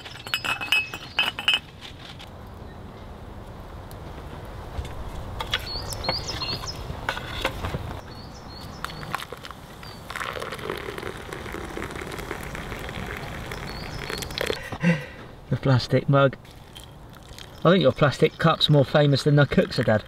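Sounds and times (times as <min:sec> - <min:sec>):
water pouring into cup: 0:09.1 - 0:14.7, 0:16.5 - 0:17.8, 0:19.4 - 0:20.0.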